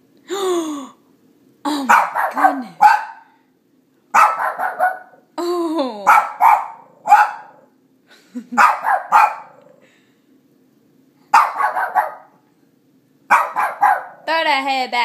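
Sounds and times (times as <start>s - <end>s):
small dog barking: 1.8s - 3.3s, 4.1s - 5.2s, 6.1s - 7.7s, 8.6s - 9.7s, 11.3s - 12.4s, 13.3s - 14.3s.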